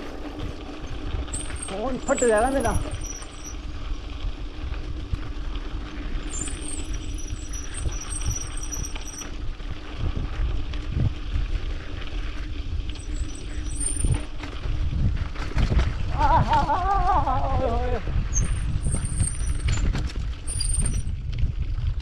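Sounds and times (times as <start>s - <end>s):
bike tyres rattling over gravel: 0.0s - 22.0s
wind buffeting microphone: 0.0s - 22.0s
thin high-pitched whine: 1.3s - 3.7s, 6.2s - 9.3s, 12.9s - 14.3s.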